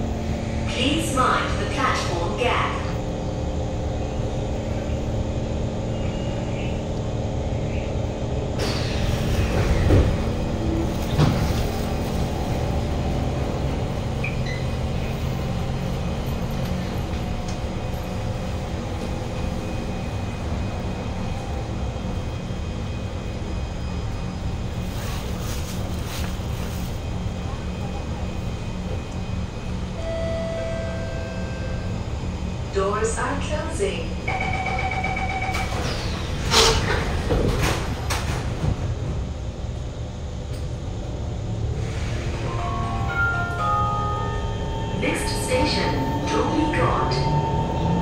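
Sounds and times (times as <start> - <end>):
train hum and ventilation: 0.0 - 48.0
train doors opening hiss: 8.6 - 10.4, 35.7 - 38.8, 41.7 - 42.6.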